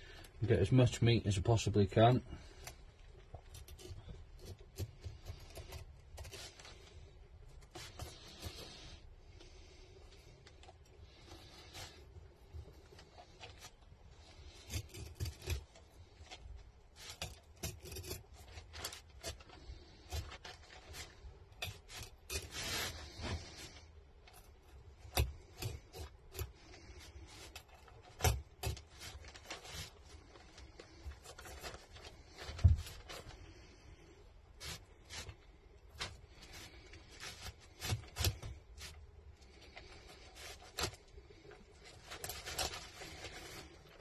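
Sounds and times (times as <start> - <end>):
knife scraping fish bones: 13.4 - 15.8, 17.0 - 30.0, 36.0 - 39.0.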